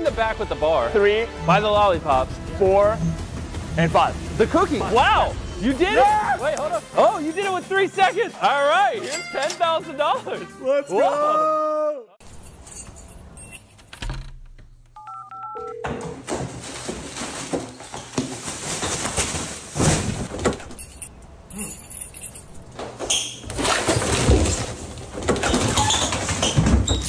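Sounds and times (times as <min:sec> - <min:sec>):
two-tone keypad beeps: 0:15.0 - 0:15.8.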